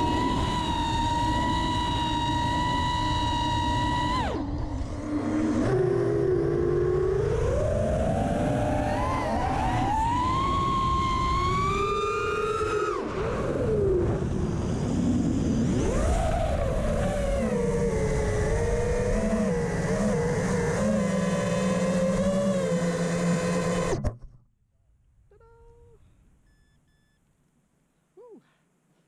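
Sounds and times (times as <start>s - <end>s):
quadcopter motors whining: 0.0s - 24.1s
short beep: 26.4s - 27.2s.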